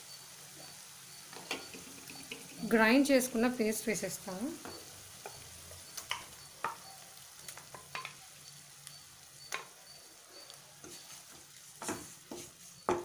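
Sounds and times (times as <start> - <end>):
food sizzling in a pan: 0.0 - 13.0
spatula knocking against pan: 11.8 - 13.0.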